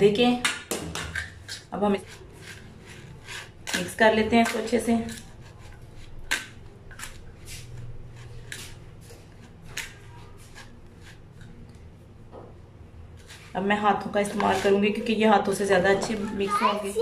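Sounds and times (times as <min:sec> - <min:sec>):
fork scraping a steel plate: 0:01.2 - 0:11.6.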